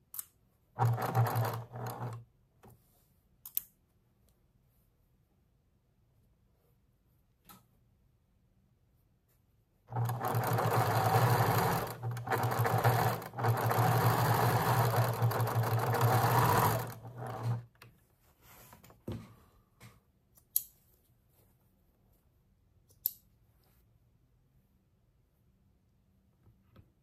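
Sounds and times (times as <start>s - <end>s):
sewing machine stitching: 0.8s - 2.2s, 9.9s - 17.7s.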